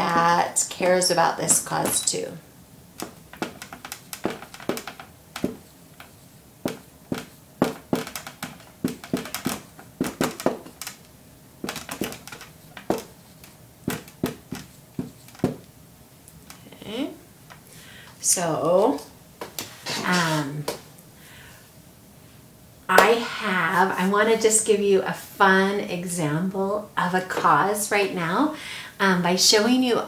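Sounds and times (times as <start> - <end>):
marker writing on whiteboard: 3.0 - 10.8, 11.7 - 15.6.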